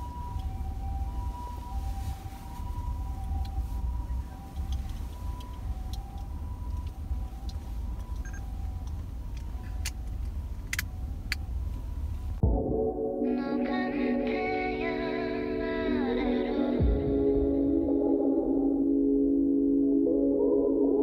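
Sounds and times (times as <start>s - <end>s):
two-tone siren: 0.0s - 12.4s
road and engine rumble: 0.0s - 12.5s.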